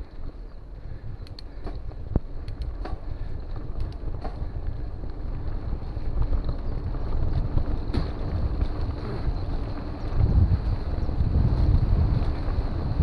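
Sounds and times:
bike rattling clicks: 0:00.0 - 0:13.0
wind buffeting microphone: 0:00.0 - 0:13.0.

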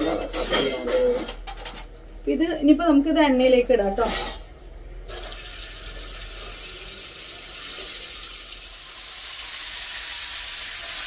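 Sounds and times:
food sizzling in hot oil: 0:05.1 - 0:11.0.

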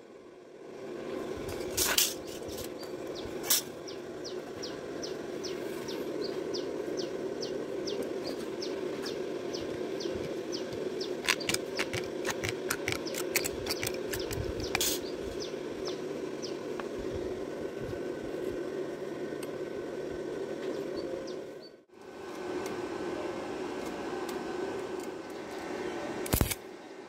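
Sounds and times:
steady low hum: 0:00.0 - 0:27.0
bird chirping: 0:02.8 - 0:16.6
tin snips cutting sheet metal: 0:11.2 - 0:15.0, 0:26.3 - 0:26.6.

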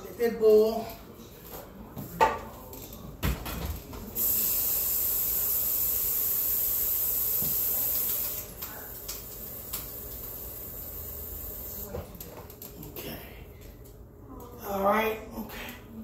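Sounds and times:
loud high-pitched hiss: 0:04.2 - 0:08.5.

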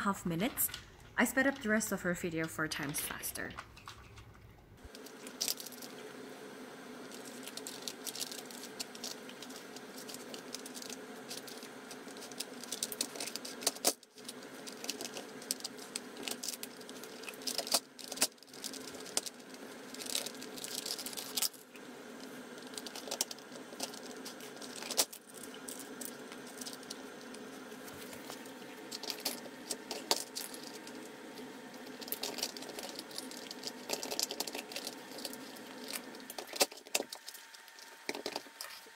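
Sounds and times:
steady hum: 0:00.0 - 0:38.9
dry kibble rattling: 0:07.1 - 0:21.8, 0:22.5 - 0:38.9.

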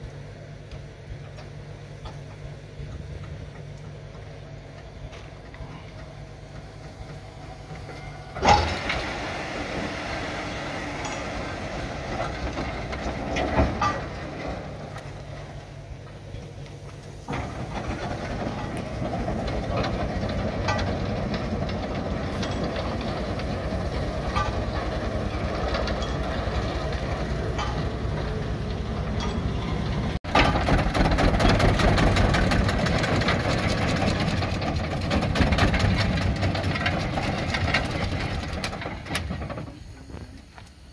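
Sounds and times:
steam wagon driving over gravel: 0:00.0 - 0:40.9.

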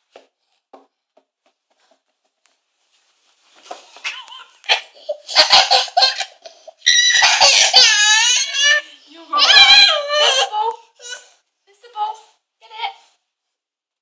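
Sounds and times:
toddler's high-pitched voice: 0:07.3 - 0:11.3.

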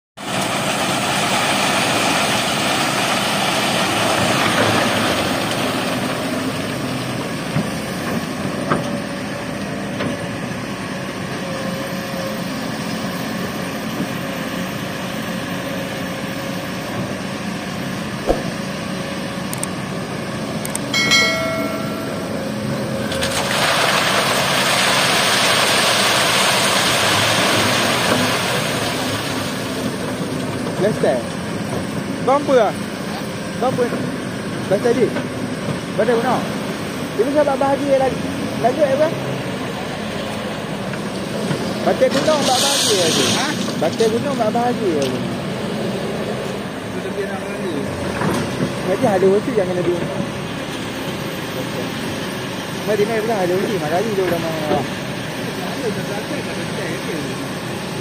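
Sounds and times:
excavator diesel engine running: 0:00.2 - 0:58.0
sand and gravel pouring through screen: 0:23.3 - 0:29.6, 0:42.2 - 0:43.7.

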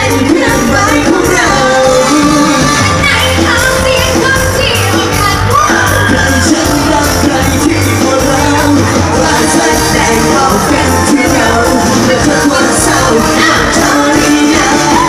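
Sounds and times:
live band music through pa: 0:00.0 - 0:15.0
person singing: 0:04.6 - 0:15.0.

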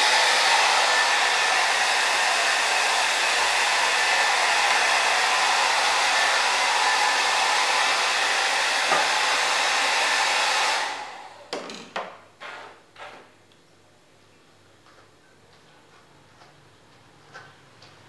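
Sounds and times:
hair dryer blowing: 0:00.0 - 0:11.5.

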